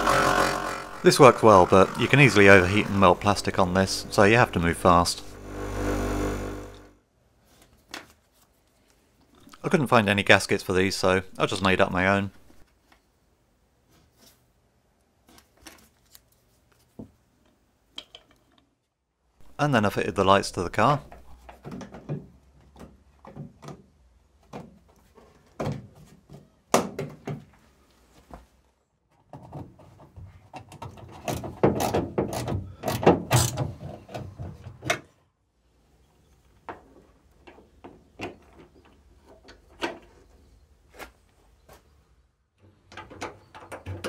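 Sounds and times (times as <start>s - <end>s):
spanner working nuts: 0.0s - 4.6s.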